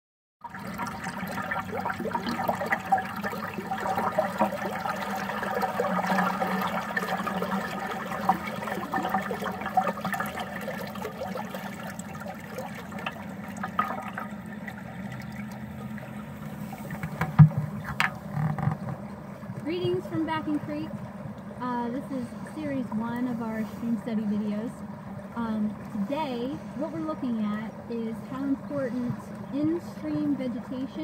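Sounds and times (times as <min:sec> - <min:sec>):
creek water rushing and gurgling: 0:00.4 - 0:17.9.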